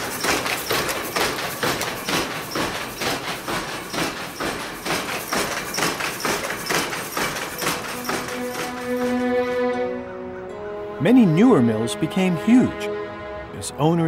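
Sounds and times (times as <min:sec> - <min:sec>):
power loom clattering: 0:00.0 - 0:09.8.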